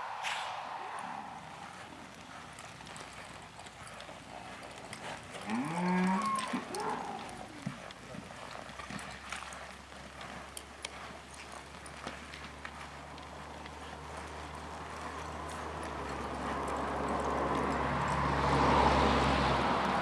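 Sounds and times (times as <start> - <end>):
calf mooing: 5.5 - 7.2.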